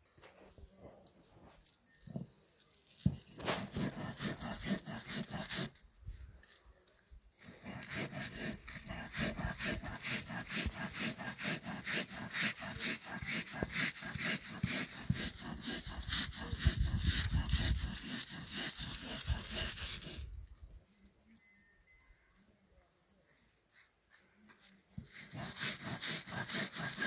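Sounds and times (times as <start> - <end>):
stone roller grinding on slab: 3.5 - 5.8, 7.4 - 20.3, 25.0 - 27.0.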